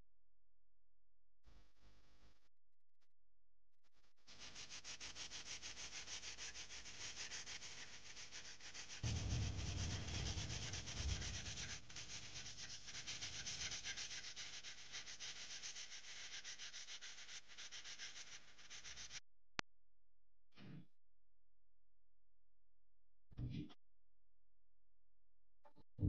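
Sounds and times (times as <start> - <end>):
hand sanding scratchy rubbing: 4.3 - 19.2
low rumble: 9.0 - 13.2.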